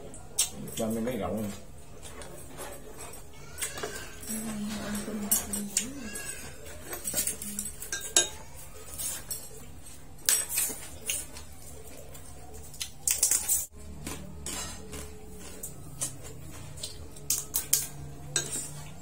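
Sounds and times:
chopsticks clicking against ceramic bowls: 12.6s - 19.0s.

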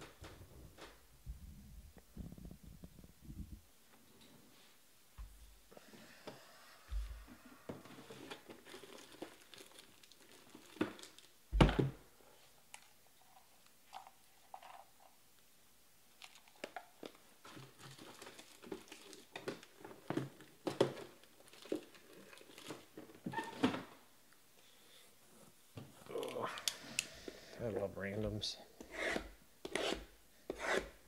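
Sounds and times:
packaging crinkling and tearing: 8.1s - 11.4s, 16.2s - 23.2s.

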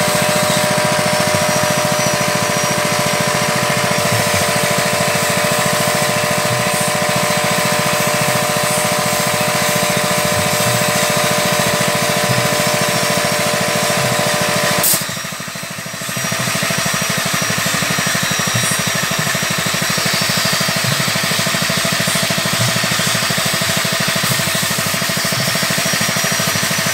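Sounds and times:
machine running with whine: 0.0s - 26.9s.

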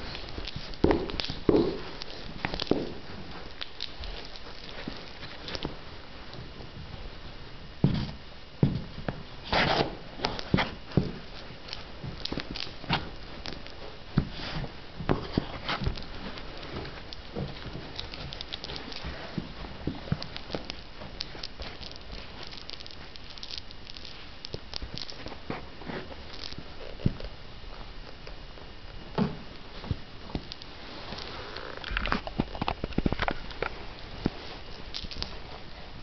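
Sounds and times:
soles scuffing: 0.0s - 7.1s, 7.8s - 23.1s, 24.0s - 28.1s
boots stomping on hard floor: 0.4s - 3.1s, 7.8s - 9.3s, 12.0s - 18.4s, 29.1s - 30.5s.

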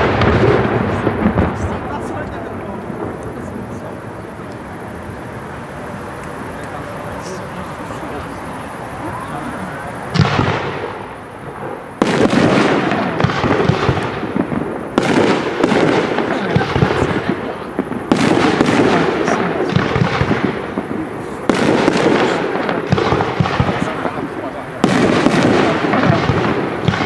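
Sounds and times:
firework rising whistle: 3.2s - 15.6s.

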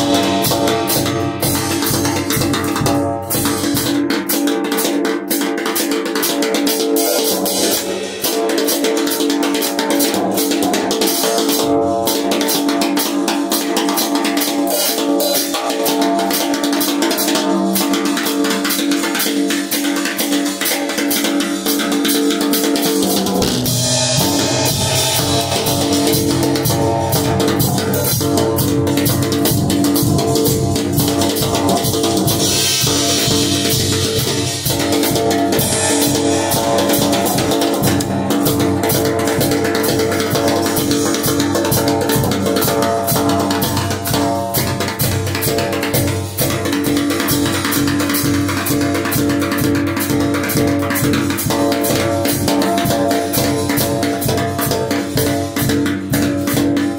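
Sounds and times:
snare and cymbal strokes: 0.0s - 56.9s
bass guitar: 23.4s - 34.7s.

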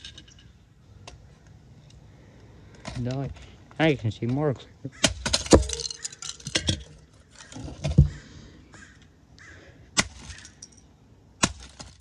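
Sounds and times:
loose plastic pieces rattling: 5.2s - 7.7s.

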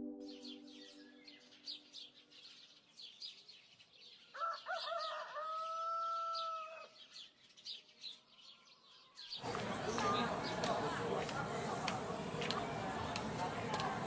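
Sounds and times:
small birds chirping: 0.0s - 14.0s
rooster crowing: 4.4s - 6.9s.

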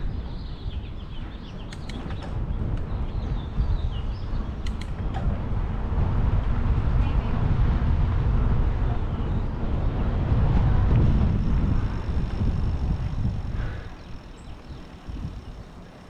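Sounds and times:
small birds chirping: 0.0s - 5.0s, 12.7s - 16.0s
low outdoor rumbling: 0.0s - 16.0s
sharp clicks: 1.7s - 2.9s, 4.6s - 5.3s.

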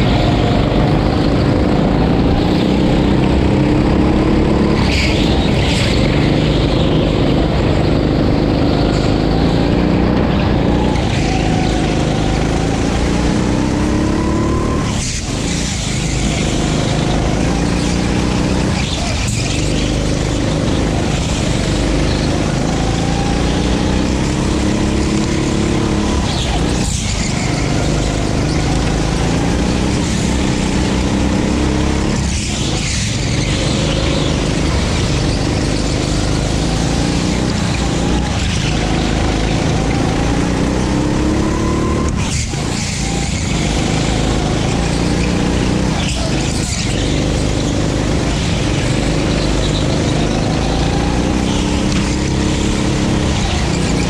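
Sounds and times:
go-kart engine racing: 0.0s - 54.0s
wind and tyre noise: 0.0s - 54.0s.

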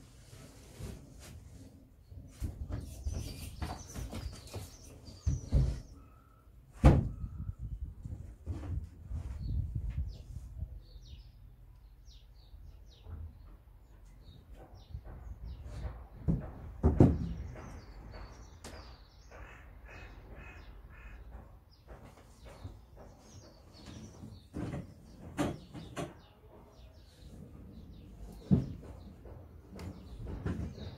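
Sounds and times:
birds calling: 2.3s - 7.7s, 10.9s - 30.9s
knocks and bumps in loft: 6.7s - 10.2s, 14.4s - 19.6s, 21.3s - 26.4s, 27.4s - 30.9s.

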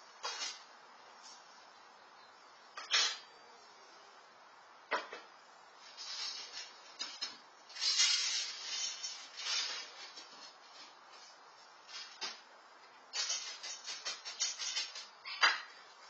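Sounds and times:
rustling: 5.8s - 16.0s.

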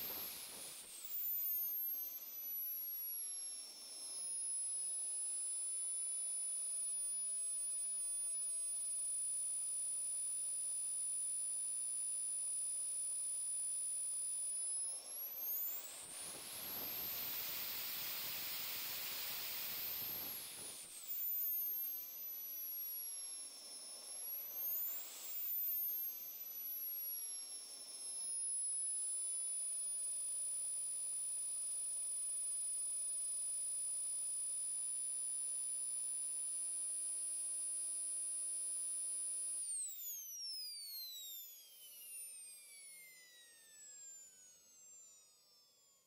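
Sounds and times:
jet turbine whine: 0.0s - 4.4s, 14.7s - 28.2s, 39.6s - 45.8s.

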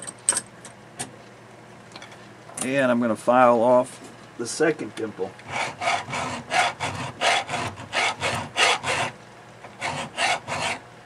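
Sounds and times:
hand file rasping on steel: 5.5s - 9.1s, 9.8s - 10.8s.

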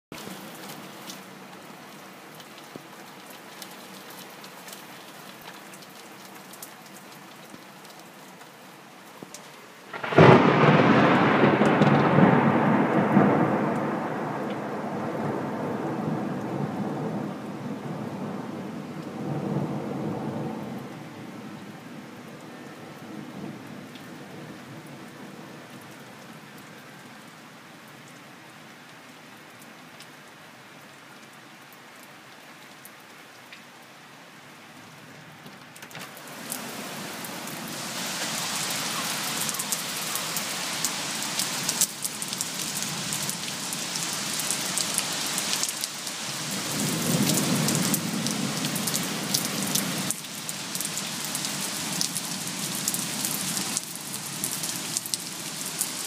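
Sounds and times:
heavy rain: 0.1s - 56.0s
thunder rumble: 9.9s - 21.6s.

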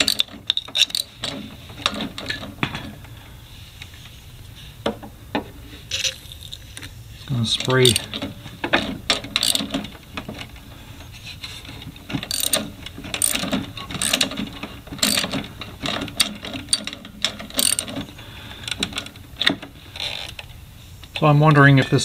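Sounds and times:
socket ratchet clicking: 0.0s - 1.2s, 9.1s - 9.8s, 12.3s - 14.4s, 15.0s - 15.4s, 16.1s - 18.0s.

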